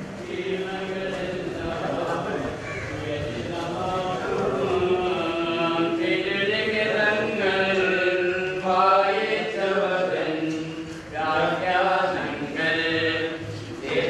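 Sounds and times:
voices singing a slow hymn: 0.0s - 14.0s.

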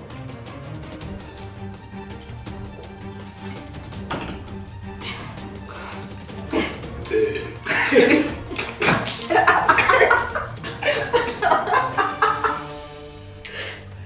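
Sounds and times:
background music: 0.0s - 14.0s
people laughing and spluttering: 6.0s - 12.7s.

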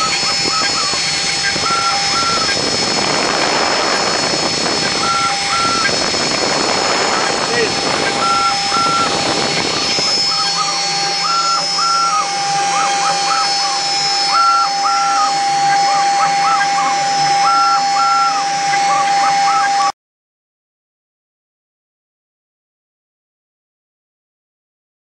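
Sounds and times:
router spindle whine: 0.0s - 19.9s
stepper motors singing tones: 0.0s - 19.9s.

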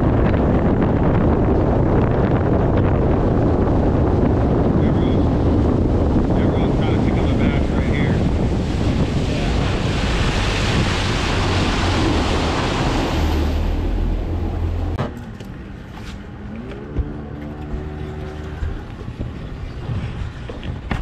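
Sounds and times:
outboard motor: 0.0s - 21.0s
water rushing along hull: 0.0s - 21.0s
wind on microphone: 0.0s - 21.0s
engine hum rising in pitch: 9.4s - 20.1s.

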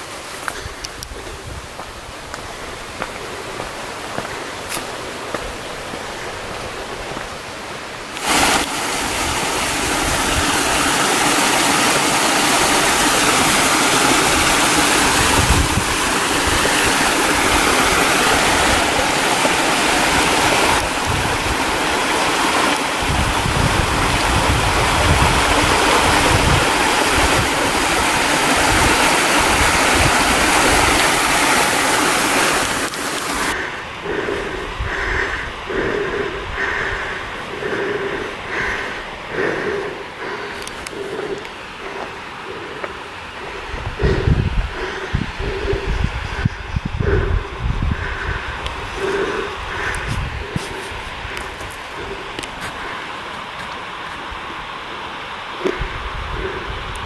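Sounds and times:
water rushing over rocks: 0.0s - 46.5s, 48.3s - 57.0s
footsteps on dirt trail: 0.2s - 8.8s, 49.0s - 54.3s.

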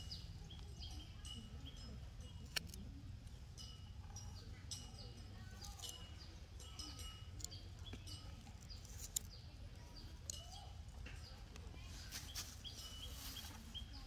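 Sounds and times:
faint bird chirps: 3.6s - 14.0s.

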